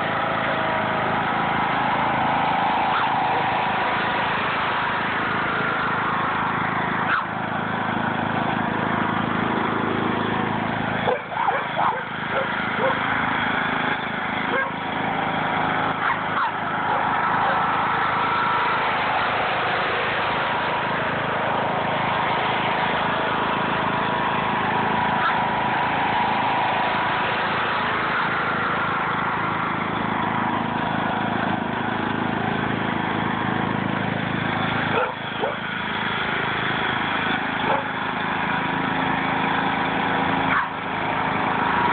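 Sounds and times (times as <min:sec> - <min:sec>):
riding mower engine running: 0:00.0 - 0:41.9.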